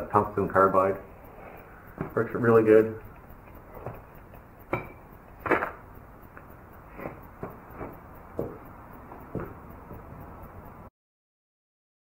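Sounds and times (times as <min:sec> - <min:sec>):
footsteps: 0:01.9 - 0:02.4, 0:03.1 - 0:10.3
tools knocking and clunking: 0:03.0 - 0:10.2.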